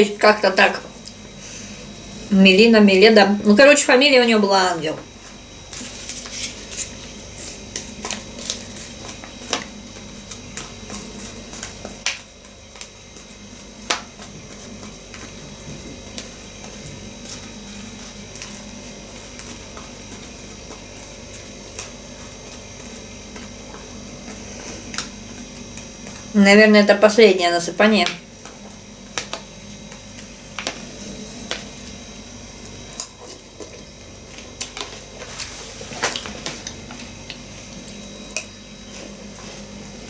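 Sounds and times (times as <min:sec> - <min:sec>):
quiet eating: 0:05.1 - 0:26.4, 0:32.6 - 0:40.0.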